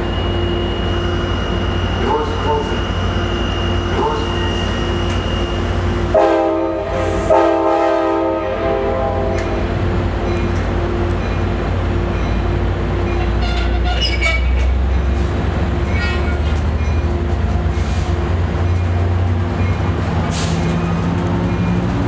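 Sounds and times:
train wheel squeals: 0:00.0 - 0:06.0, 0:13.1 - 0:15.2, 0:15.8 - 0:19.0
diesel train rumbling past: 0:00.0 - 0:22.0.

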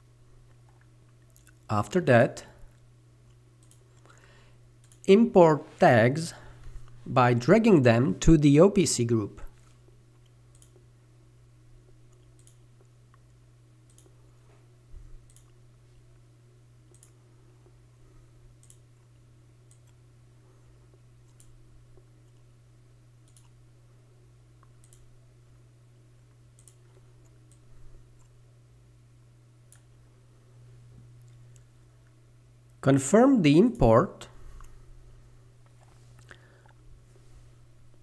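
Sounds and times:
steady low hum: 0:00.0 - 0:38.0
computer mouse clicks: 0:03.6 - 0:04.1, 0:04.8 - 0:05.1, 0:10.2 - 0:10.8, 0:12.1 - 0:12.6, 0:13.9 - 0:14.2, 0:15.2 - 0:15.6, 0:16.9 - 0:17.2, 0:18.6 - 0:18.8, 0:19.7 - 0:20.0, 0:21.2 - 0:21.6, 0:23.2 - 0:23.6, 0:24.6 - 0:25.1, 0:26.6 - 0:28.4.

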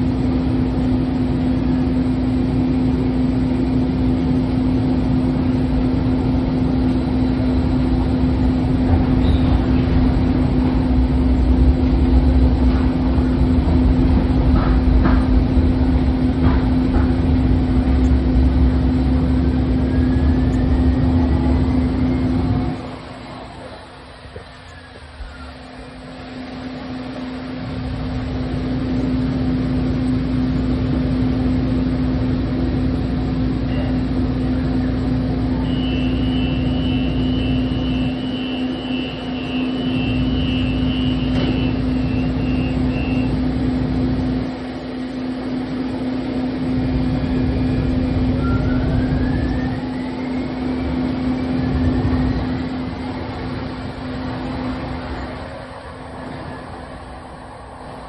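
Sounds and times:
light rail vehicle rumble: 0:00.0 - 0:58.0
steady low hum: 0:00.0 - 0:58.0
rising whines: 0:07.0 - 0:26.0, 0:45.7 - 0:58.0.

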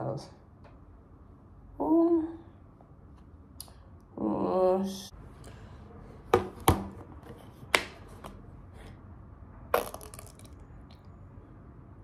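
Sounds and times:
squeeze bottle squirt: 0:09.8 - 0:10.6.

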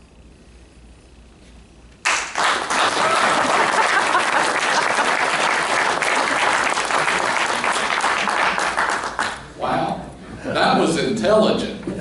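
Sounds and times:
audience applauding: 0:02.0 - 0:09.5.

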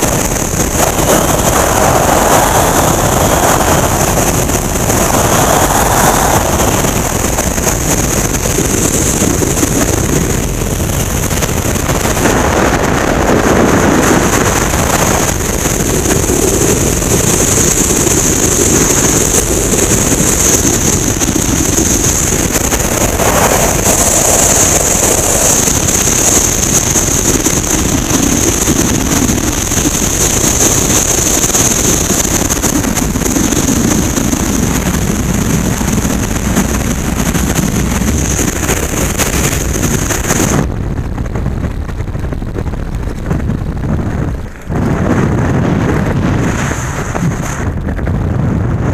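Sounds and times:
freefall wind roaring: 0:00.0 - 0:48.9.

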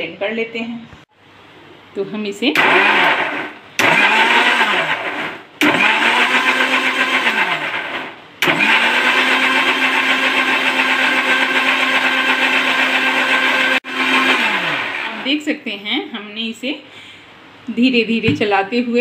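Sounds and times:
mixer grinder motor whirring: 0:02.6 - 0:15.4.

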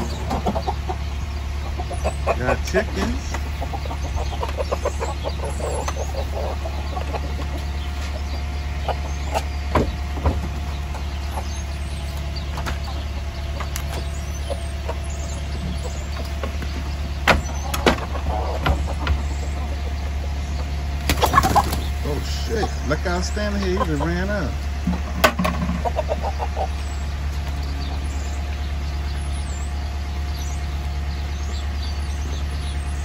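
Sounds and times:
chickens clucking: 0:00.0 - 0:33.0
steady low hum: 0:00.0 - 0:33.0
sharp knocks: 0:24.8 - 0:25.9.

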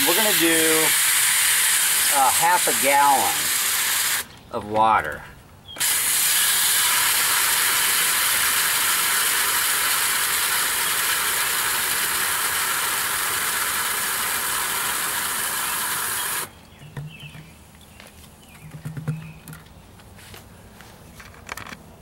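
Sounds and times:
hose water pouring into tank: 0:00.0 - 0:04.3, 0:05.8 - 0:16.5.

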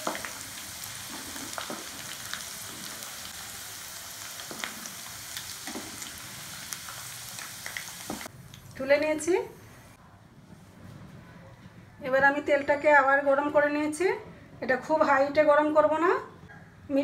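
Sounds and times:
potatoes sizzling in hot oil: 0:00.0 - 0:08.3.

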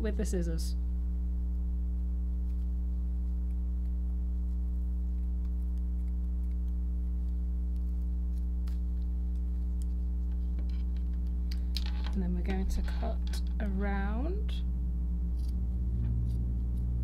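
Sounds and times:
low electrical hum: 0:00.0 - 0:17.0
scissors snipping: 0:15.3 - 0:17.0.

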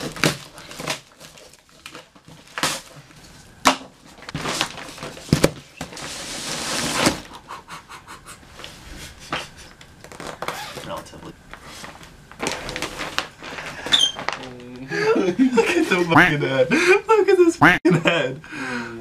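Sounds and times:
plastic-wrapped rug rustling: 0:00.0 - 0:07.4, 0:10.0 - 0:14.8.

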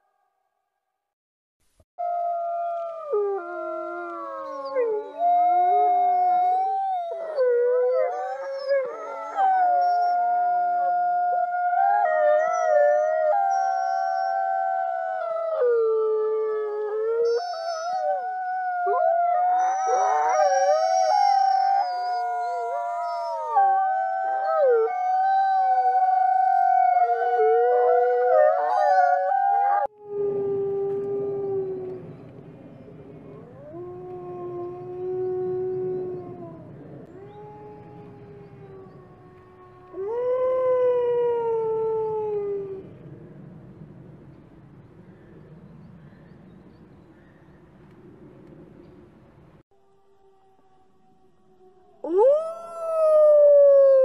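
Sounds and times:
wolves howling: 0:02.1 - 0:32.3, 0:50.2 - 0:54.0.

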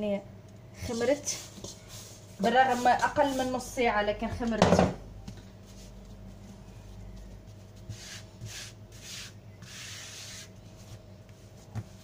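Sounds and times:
hand brushing flour on countertop: 0:00.9 - 0:03.8, 0:07.5 - 0:12.0.

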